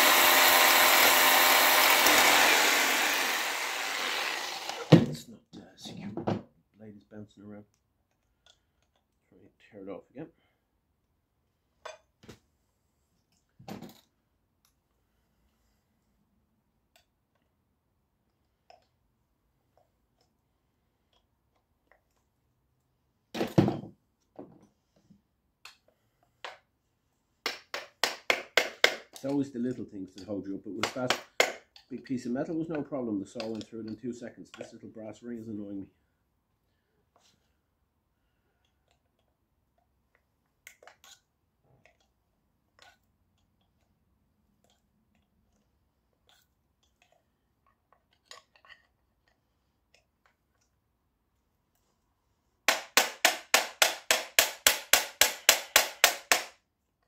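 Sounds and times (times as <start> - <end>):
rapid hammer taps: 52.7 - 56.5.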